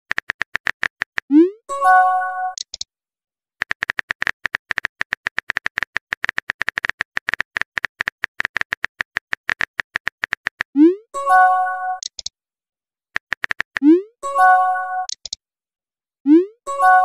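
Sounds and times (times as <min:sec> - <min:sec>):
phone keyboard clicks: 0:00.1 - 0:01.3, 0:02.6 - 0:02.9, 0:03.6 - 0:10.7, 0:12.0 - 0:12.3, 0:13.2 - 0:13.8, 0:15.1 - 0:15.4.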